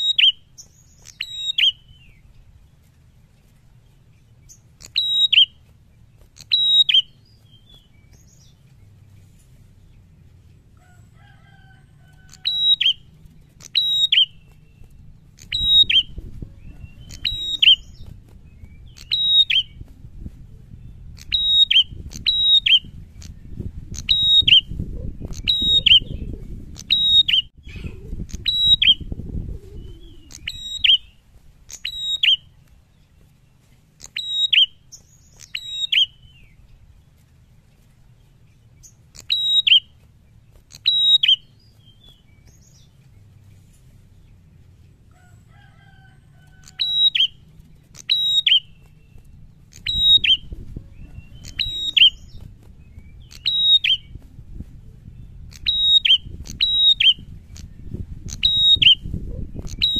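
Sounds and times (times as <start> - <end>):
bird sharp high calls: 0.0 - 2.3, 4.4 - 9.0, 10.8 - 19.9, 20.8 - 29.1, 29.8 - 36.8, 38.5 - 43.5, 45.1 - 54.2, 55.2 - 59.9
low rumble: 48.8 - 53.4.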